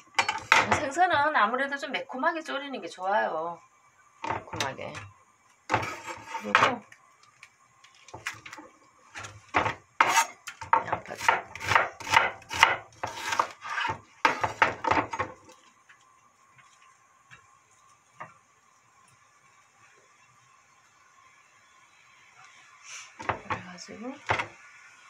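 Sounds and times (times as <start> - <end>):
knife chopping on wooden board: 9.6 - 15.2.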